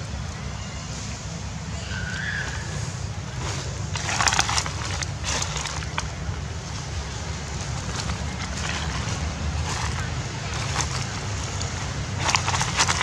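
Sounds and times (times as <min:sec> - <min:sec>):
dry leaves crunching underfoot: 0:02.2 - 0:13.0.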